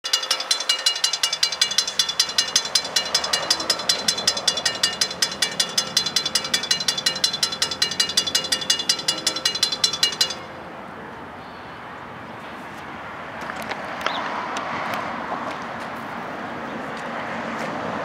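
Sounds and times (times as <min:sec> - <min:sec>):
railroad crossing bell ringing: 0:00.0 - 0:11.9
street background hum: 0:00.0 - 0:18.0.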